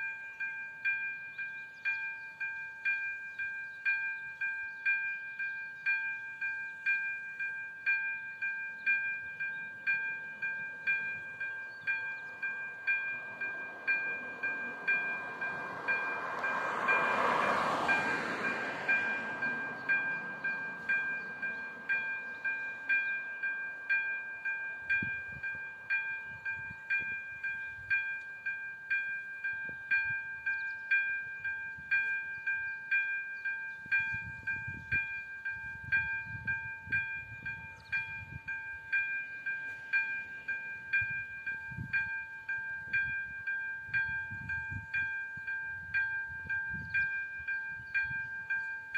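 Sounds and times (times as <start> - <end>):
level crossing warning bell: 0.0 - 48.9
car passing by: 13.3 - 21.9.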